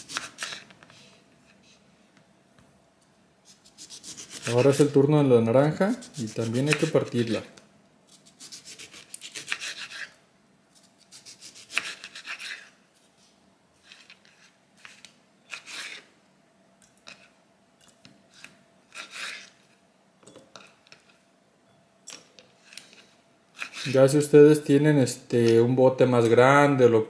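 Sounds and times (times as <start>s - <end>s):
knife sawing through orange: 3.5s - 4.8s, 8.3s - 10.2s, 11.1s - 12.7s, 18.9s - 19.5s, 23.6s - 24.0s.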